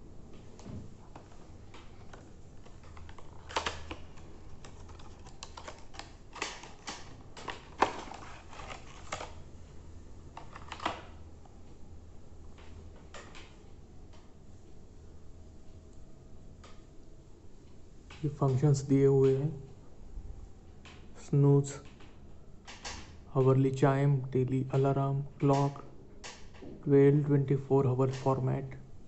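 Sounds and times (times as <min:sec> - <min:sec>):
cardboard and plastic packaging crinkling: 0:01.0 - 0:09.6, 0:10.3 - 0:11.1.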